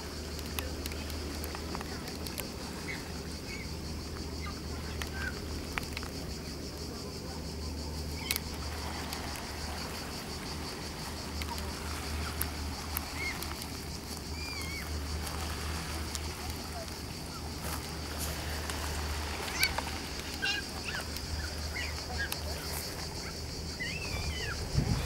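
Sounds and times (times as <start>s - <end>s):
insects droning: 0.0s - 25.0s
sharp clicks: 8.1s - 9.5s.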